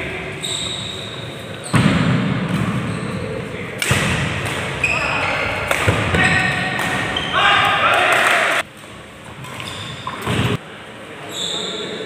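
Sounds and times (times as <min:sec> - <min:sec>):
badminton rackets hitting shuttlecock: 0:03.8 - 0:04.8, 0:05.5 - 0:07.3.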